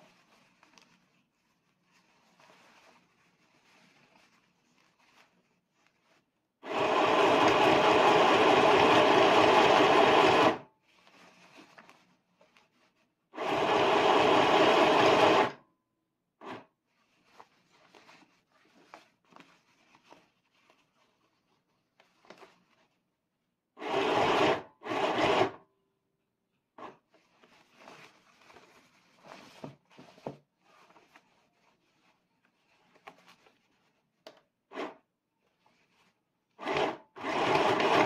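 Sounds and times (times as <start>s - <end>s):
fabric rustling: 0.0s - 6.5s, 10.8s - 13.2s, 16.8s - 23.1s, 26.9s - 34.2s
sewing machine stitching: 6.6s - 10.6s, 13.4s - 15.6s, 23.8s - 25.6s, 36.6s - 38.0s.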